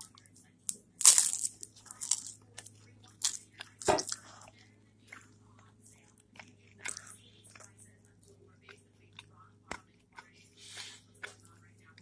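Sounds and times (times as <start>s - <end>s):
rice cake crunching: 0.0s - 12.0s.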